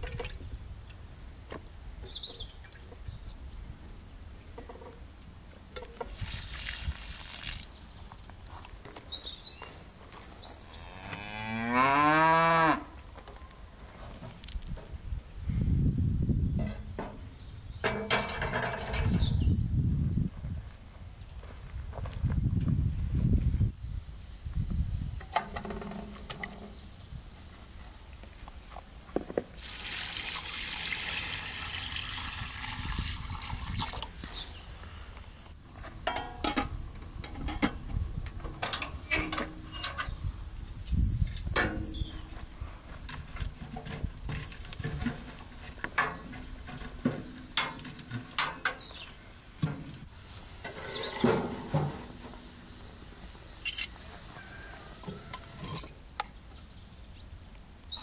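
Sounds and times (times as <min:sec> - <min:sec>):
water running: 0:29.6 - 0:34.2
cooking knocks and clinks: 0:36.0 - 0:37.8.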